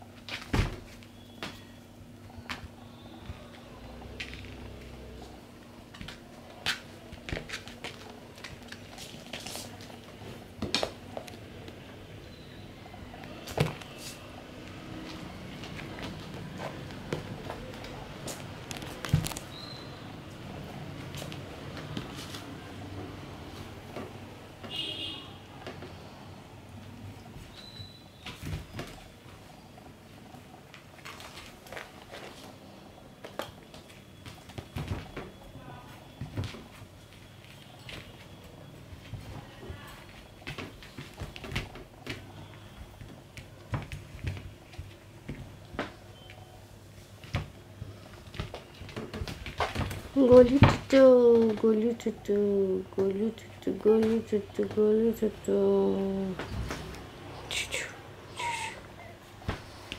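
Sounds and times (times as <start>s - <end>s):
kittens rustling on fabric: 2.6s - 11.4s.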